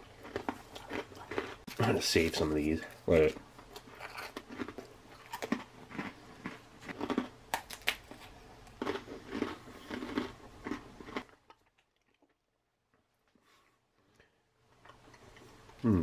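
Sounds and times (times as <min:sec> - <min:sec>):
crackers crunching on metal tray: 0:00.0 - 0:12.4.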